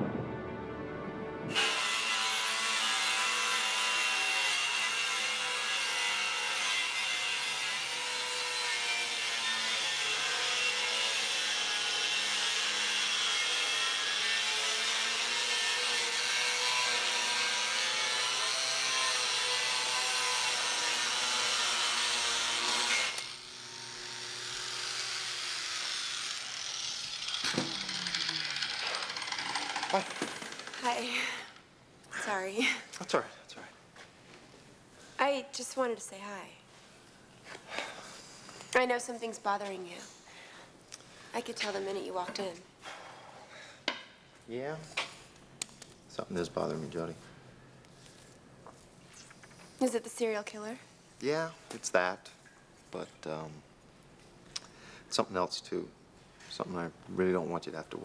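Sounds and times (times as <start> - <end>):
angle grinder grinding metal: 1.5 - 31.6
grinder winding down whine: 20.5 - 30.8.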